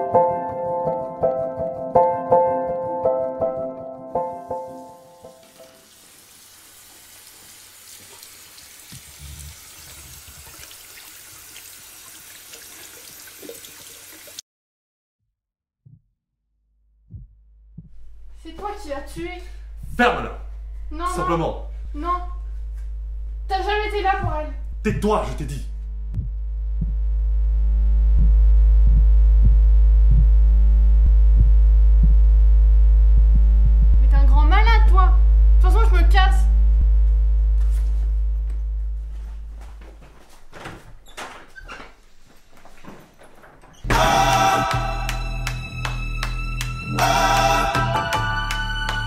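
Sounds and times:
tap running into basin: 5.3s - 14.4s
hands rubbing under water: 8.9s - 10.7s
soft low synth pulses: 17.1s - 39.1s
deep synthesizer drone: 25.6s - 39.6s, 43.9s - 49.0s.

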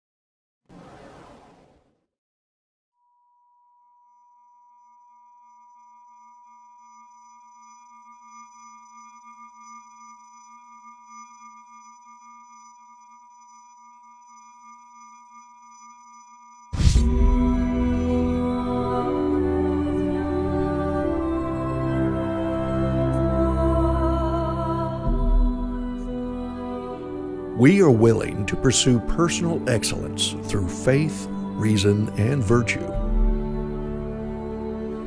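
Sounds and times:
loud musical hit: 16.8s - 18.4s
low wavering hum: 16.8s - 28.6s.

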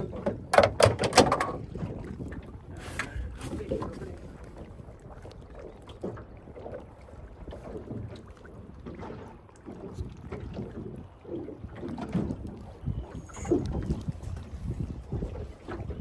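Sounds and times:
water and net knocking boat hull: 0.0s - 16.0s
wind buffeting microphone: 0.0s - 16.0s.

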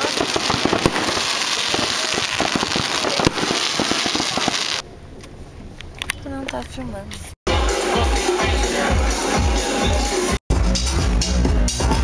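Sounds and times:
firework bangs: 0.0s - 4.8s
fireworks crackling and popping: 0.0s - 4.8s.

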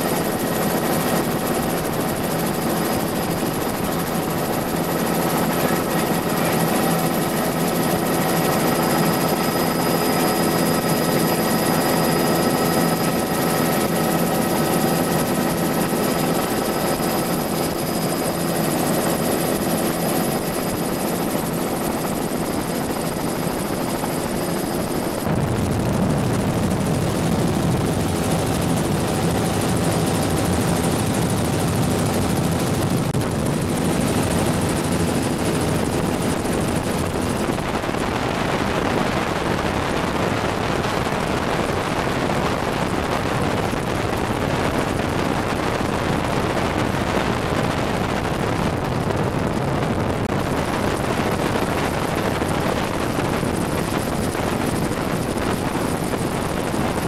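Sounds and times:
helicopter rotor and turbine noise: 0.0s - 57.0s.

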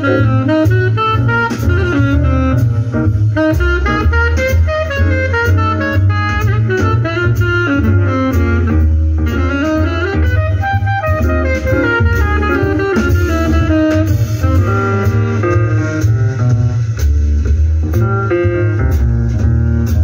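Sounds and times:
music through loudspeakers: 0.0s - 20.0s.

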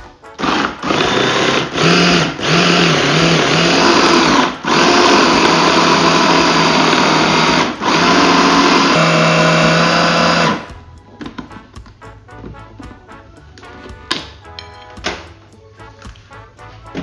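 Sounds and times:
food processor motor running: 0.4s - 10.7s.

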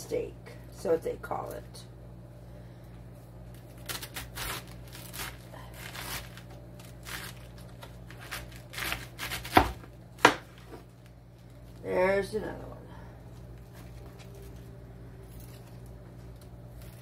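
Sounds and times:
knife crunching through cabbage: 3.6s - 10.7s.

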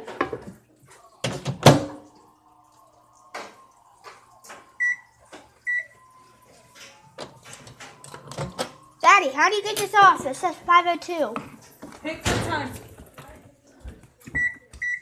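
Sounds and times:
short keypad beeps: 14.4s - 15.0s.

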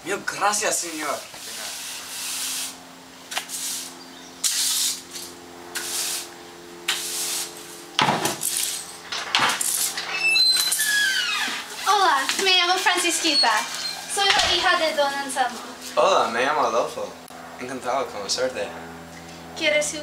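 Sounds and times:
push broom sweeping concrete: 0.7s - 9.0s.

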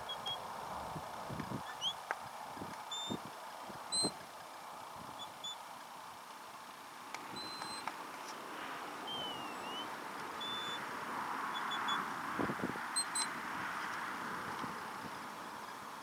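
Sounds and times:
steady hiss: 0.0s - 16.0s
shepherd's whistle: 9.1s - 10.8s.

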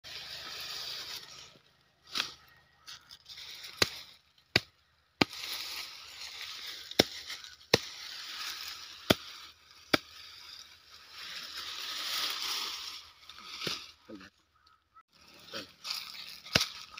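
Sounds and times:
leafy branches rustling: 0.0s - 14.3s, 15.1s - 16.9s
hand tool chopping stalks: 2.1s - 10.7s, 15.8s - 16.9s.

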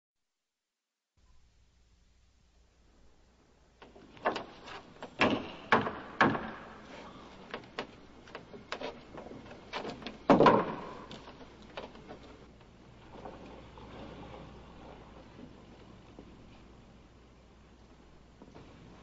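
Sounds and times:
knocks on wooden boards: 3.8s - 11.9s.

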